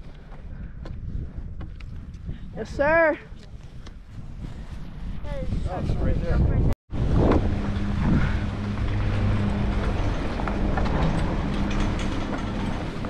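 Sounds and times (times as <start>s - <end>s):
chairlift drive mechanical hum: 6.9s - 13.0s.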